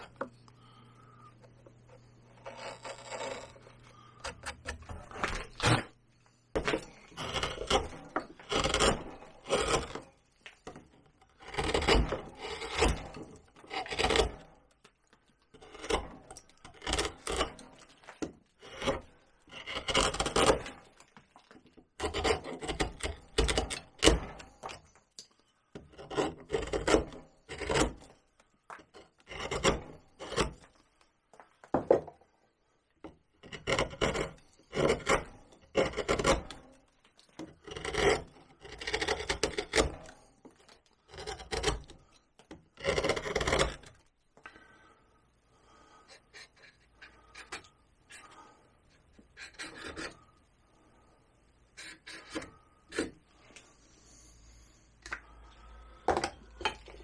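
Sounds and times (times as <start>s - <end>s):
carving tools scraping bark: 0.0s - 6.0s, 6.6s - 14.7s, 15.5s - 20.9s, 22.0s - 24.9s, 25.7s - 28.2s, 28.8s - 30.7s, 33.4s - 44.1s, 45.7s - 50.4s, 51.7s - 53.2s.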